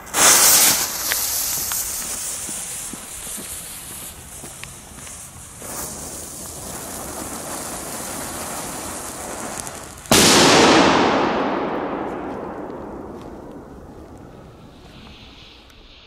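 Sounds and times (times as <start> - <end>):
firework flame charge hissing: 0.0 - 11.1, 11.9 - 16.0
bang echo: 10.1 - 14.2
firecracker loud bang: 10.1 - 14.9.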